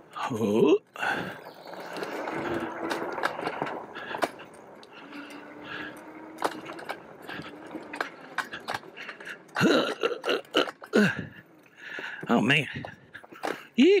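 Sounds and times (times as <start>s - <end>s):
bike knocking and rattling: 0.5s - 14.0s
electric motor whine: 1.1s - 9.7s.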